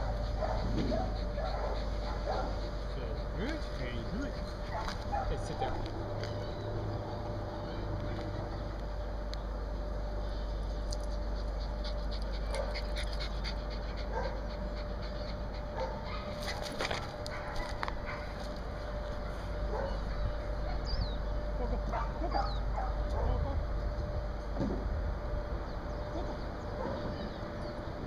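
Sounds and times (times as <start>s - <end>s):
small dog panting: 0.0s - 5.8s, 11.0s - 17.8s.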